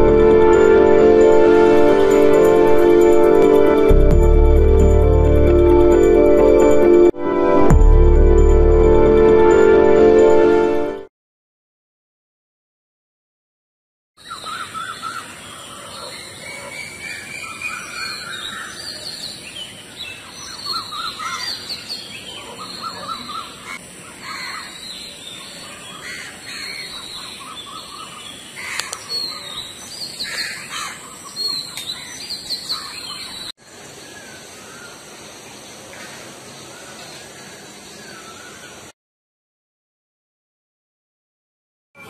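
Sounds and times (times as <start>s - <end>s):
birds chirping in trills: 14.2s - 38.9s.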